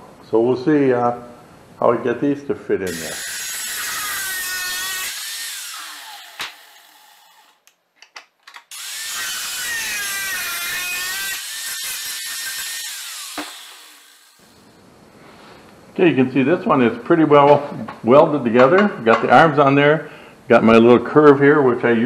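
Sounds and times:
angle grinder grinding steel: 2.9 - 7.6, 8.7 - 14.6.

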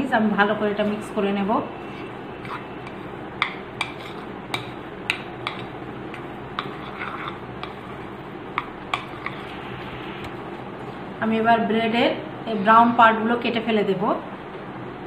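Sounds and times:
spoon scraping a bowl: 1.8 - 10.3.

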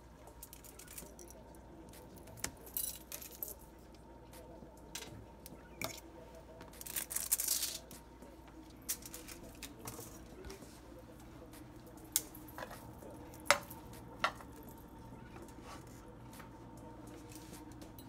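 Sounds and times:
foil crinkling: 6.8 - 7.9
fork tines scraping on foil: 6.8 - 7.9.

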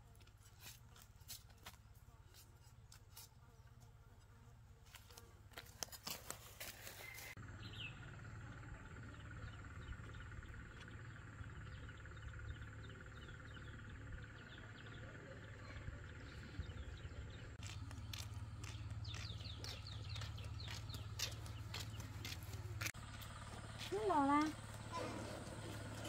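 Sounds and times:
steady low hum: 7.3 - 26.0.

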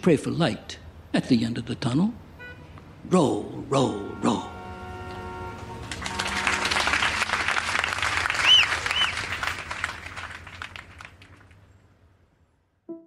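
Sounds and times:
audience applauding: 5.8 - 11.6
rising-and-falling whistles: 8.3 - 9.3.

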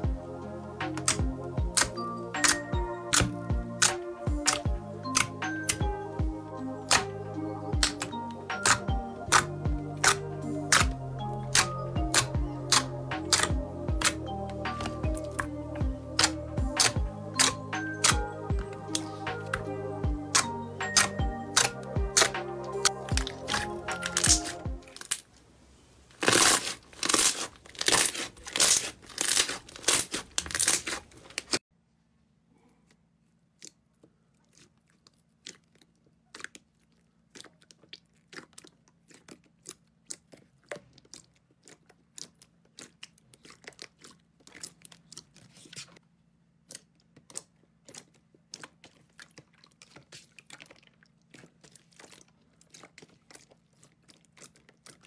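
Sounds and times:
slime squelching and clicking: 0.8 - 6.0, 6.8 - 25.3, 33.4 - 46.0, 46.6 - 55.0
slime crackling pops: 7.8 - 14.2.

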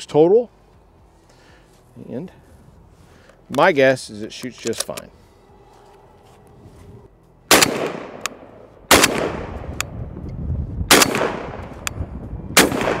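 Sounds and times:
gunshot echo: 7.5 - 9.8, 10.9 - 11.8, 12.6 - 13.0
shotgun firing: 7.5 - 9.8, 10.9 - 11.8, 12.6 - 13.0.

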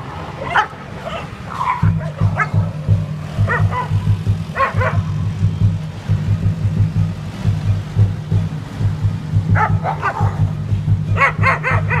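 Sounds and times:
dogs yelping and whining: 0.4 - 2.7, 11.2 - 12.0
low pulsing beat: 1.8 - 12.0.

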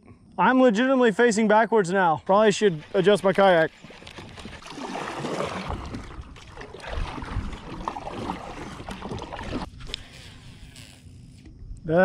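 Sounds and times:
kayak paddle splashing: 2.8 - 10.3.

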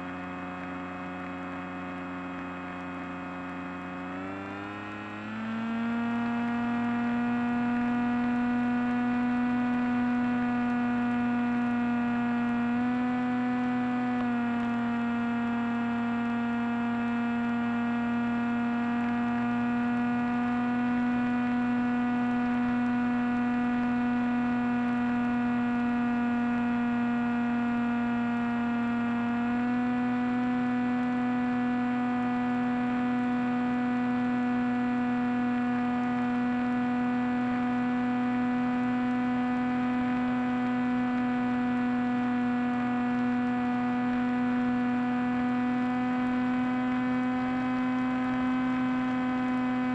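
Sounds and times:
electric motor whine: 0.0 - 49.9.

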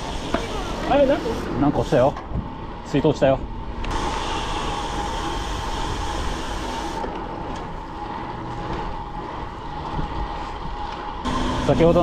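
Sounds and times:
bike tyres rolling on asphalt: 0.0 - 12.0.

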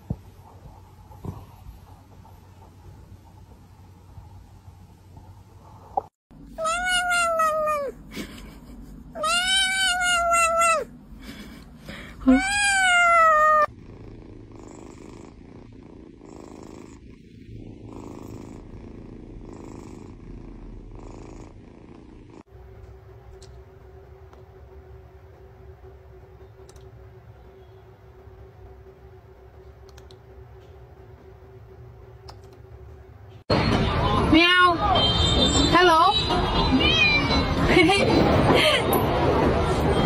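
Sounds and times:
cat meowing: 6.6 - 8.0, 9.2 - 10.9, 12.2 - 13.7
cat purring: 13.1 - 22.5.

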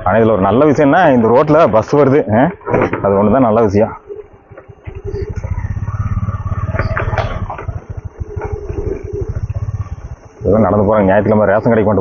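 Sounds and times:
motorcycle engine running: 3.3 - 12.0.

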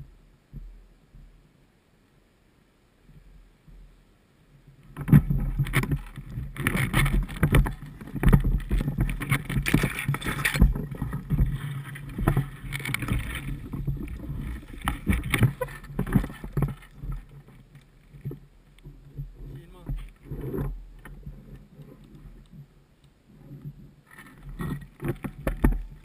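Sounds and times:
branches scraping against camera: 4.8 - 26.0
twigs knocking and snapping: 5.0 - 18.9.

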